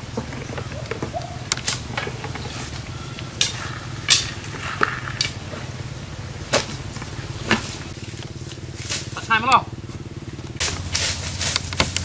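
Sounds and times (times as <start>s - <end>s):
sharp wooden knocks: 0.0s - 5.6s
bamboo sticks clattering: 0.0s - 9.7s, 10.5s - 12.0s
steady low hum: 0.0s - 12.0s.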